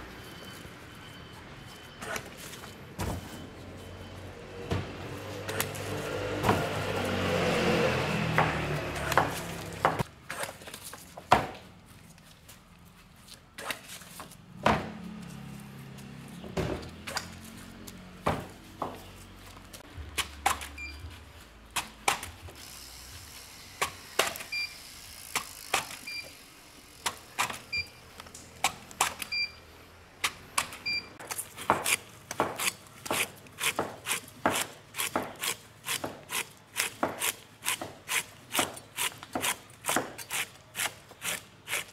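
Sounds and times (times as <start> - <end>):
knife cutting pineapple: 31.2 - 41.9.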